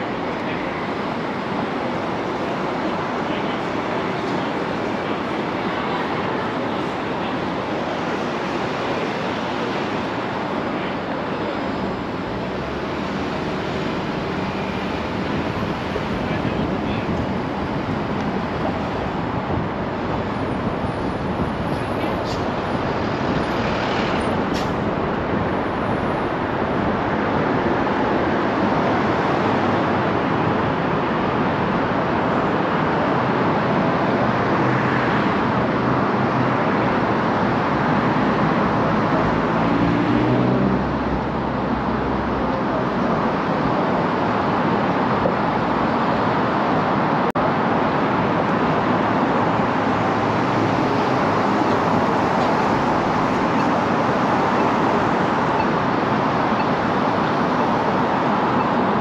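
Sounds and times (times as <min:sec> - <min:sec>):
road and tyre noise: 0:00.0 - 0:59.0
surrounding traffic: 0:00.0 - 0:59.0.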